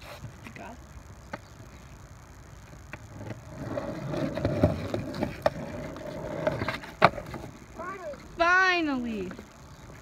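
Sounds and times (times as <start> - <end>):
skateboard wheels rolling on concrete: 0.0 - 10.0
skateboard clacks: 2.9 - 8.3.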